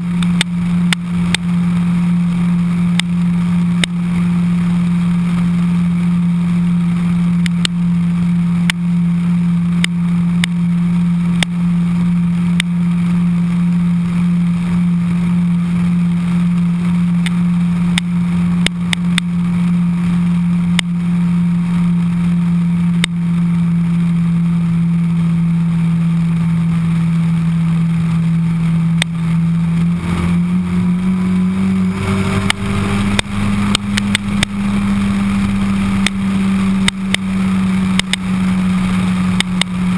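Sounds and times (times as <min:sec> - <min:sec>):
motorcycle engine running: 0:00.0 - 0:39.9
road and wind rush: 0:00.0 - 0:39.9
sharp clicks: 0:38.0 - 0:38.2.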